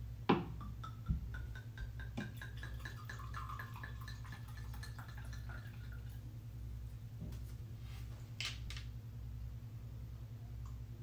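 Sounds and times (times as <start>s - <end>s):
wine trickling into glass: 0.9s - 6.2s.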